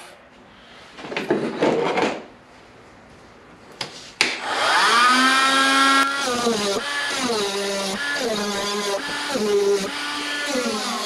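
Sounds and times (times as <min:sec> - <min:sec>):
power tool motor whining: 0:04.4 - 0:11.0.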